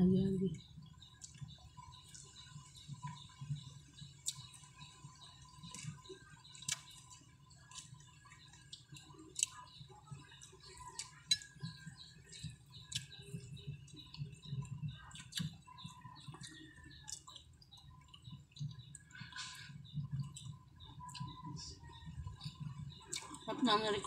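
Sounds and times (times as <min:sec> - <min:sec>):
chewing: 0:05.4 - 0:21.4, 0:22.3 - 0:23.5.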